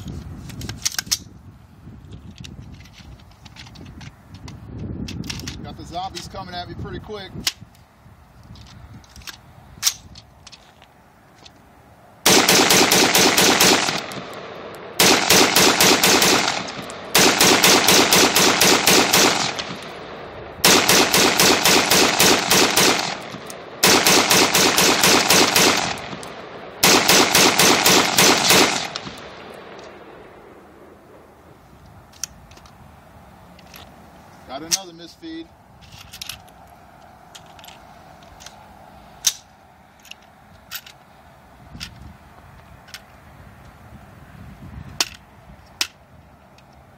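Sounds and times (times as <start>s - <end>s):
rifle firing rapid shots: 12.2s - 30.0s
gunshot echo: 12.3s - 30.9s.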